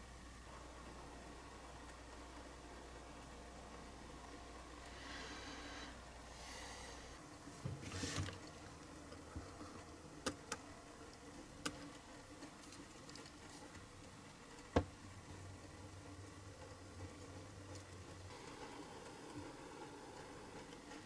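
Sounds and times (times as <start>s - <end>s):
soft plastic rustling: 7.5s - 9.9s.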